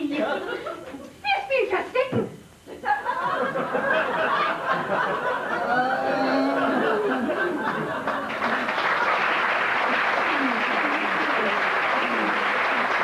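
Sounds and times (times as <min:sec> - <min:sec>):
theatre audience laughing: 0:02.7 - 0:13.0.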